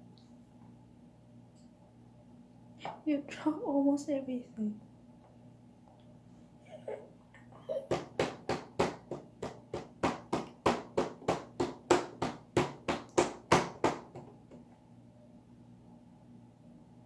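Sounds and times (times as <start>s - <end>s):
hands slapping plastic tray: 7.9s - 14.6s.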